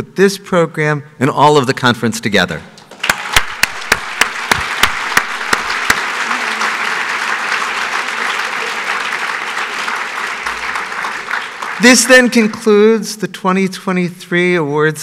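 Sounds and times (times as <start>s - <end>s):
loud close hand claps: 2.8s - 12.6s
audience applauding: 2.9s - 12.8s.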